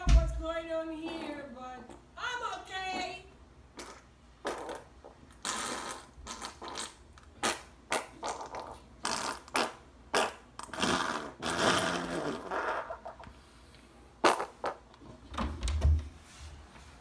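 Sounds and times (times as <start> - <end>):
fart sounds: 1.0 - 2.1, 3.7 - 13.4, 14.2 - 15.0.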